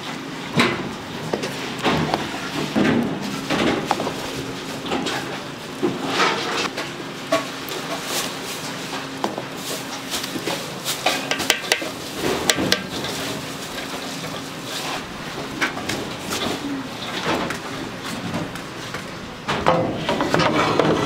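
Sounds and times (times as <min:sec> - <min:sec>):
metal utensils clinking on pans: 0:10.4 - 0:15.0.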